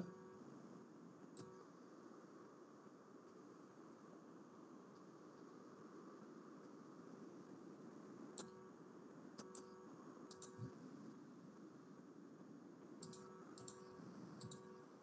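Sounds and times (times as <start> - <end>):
faint steady hum: 0.0 - 15.0
computer mouse clicking: 9.4 - 9.7, 10.3 - 10.7, 13.0 - 14.7.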